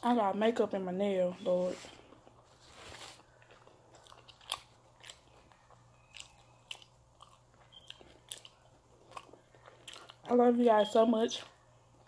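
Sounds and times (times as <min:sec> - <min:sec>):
low steady hum: 0:00.0 - 0:12.0
chewing with mouth clicks: 0:03.2 - 0:10.4.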